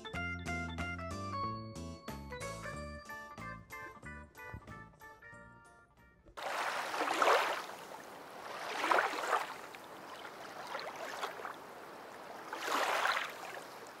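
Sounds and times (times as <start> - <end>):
low steady hiss: 6.4 - 14.0.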